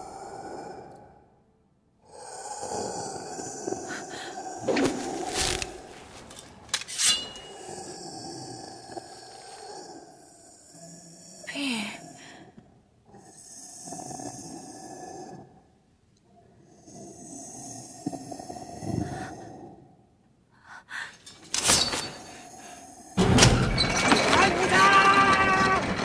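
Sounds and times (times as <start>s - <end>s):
heavy rasping breathing: 0.0s - 1.3s, 2.0s - 15.8s.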